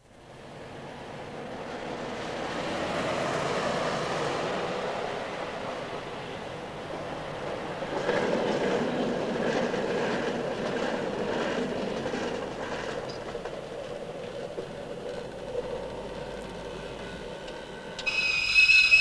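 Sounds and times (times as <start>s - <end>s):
train wheels clattering over rails: 6.9s - 19.0s.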